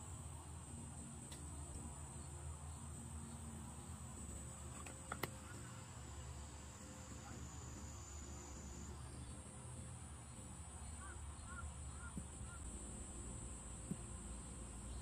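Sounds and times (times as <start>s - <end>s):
thin high whine: 2.9s - 9.7s.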